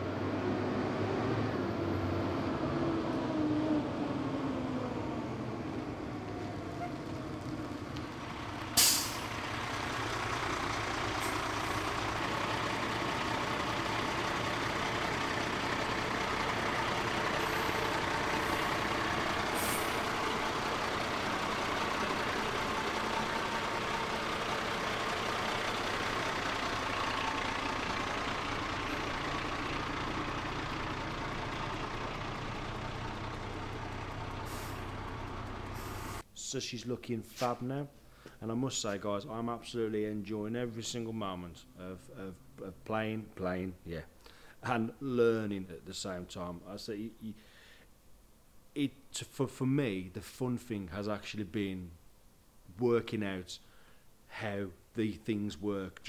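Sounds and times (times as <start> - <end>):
diesel engine idling: 1.9 - 36.3.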